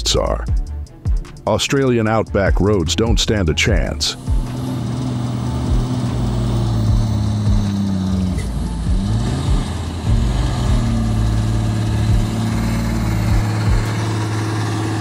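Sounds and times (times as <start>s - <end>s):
truck diesel engine pulling: 2.8s - 15.0s
low thumps: 4.3s - 15.0s.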